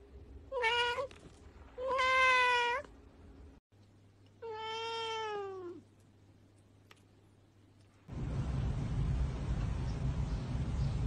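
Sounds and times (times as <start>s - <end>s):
cat meowing: 1.8s - 2.9s, 4.4s - 5.8s.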